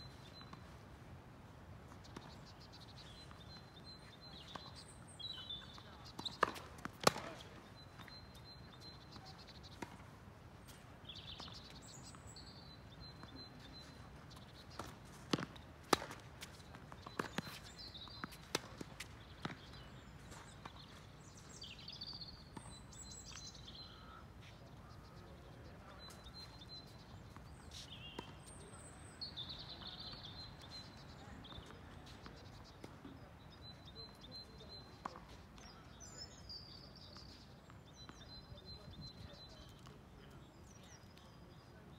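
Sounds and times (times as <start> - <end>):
low outdoor background: 0.0 - 41.9
tennis balls struck by racquets: 1.9 - 10.1, 13.0 - 21.0
small birds chirping: 1.9 - 41.9.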